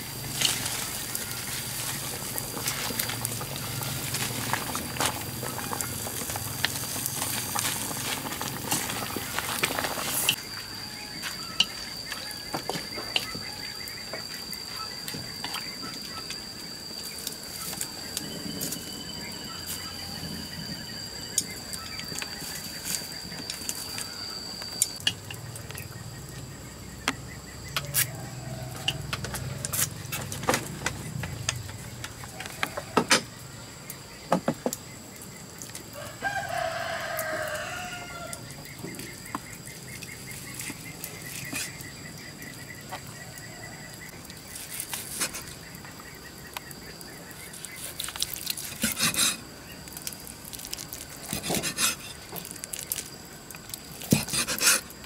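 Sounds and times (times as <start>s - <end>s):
rooster crowing: 10.4s - 13.9s, 27.8s - 29.7s, 35.9s - 38.6s.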